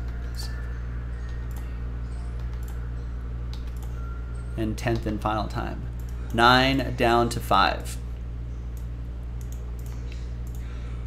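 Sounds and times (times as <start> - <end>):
steady low hum: 0.0 - 11.0
computer mouse clicks: 2.4 - 2.8, 3.5 - 4.0, 8.7 - 10.6.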